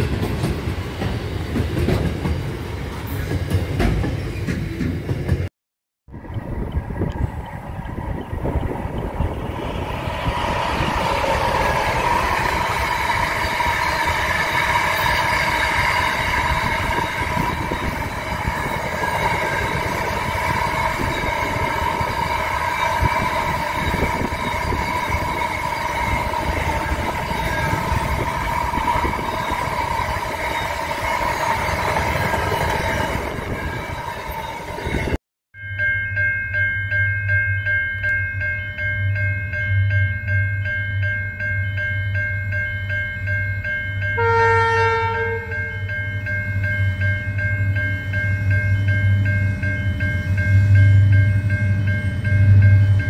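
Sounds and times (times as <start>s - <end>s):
train wheels rumbling on rail: 0.0s - 5.5s, 6.1s - 35.2s
high ringing tone: 6.3s - 53.0s.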